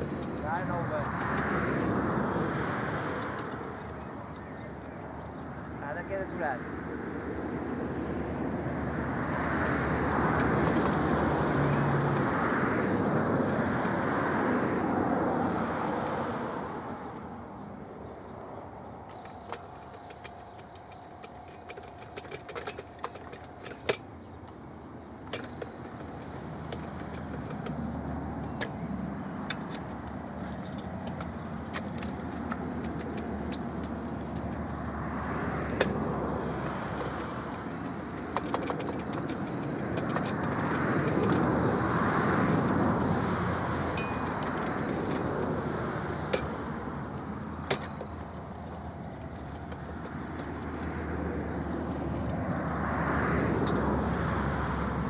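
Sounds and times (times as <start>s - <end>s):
faint steady whine: 16.2s - 35.0s
machine running noise: 18.6s - 46.9s.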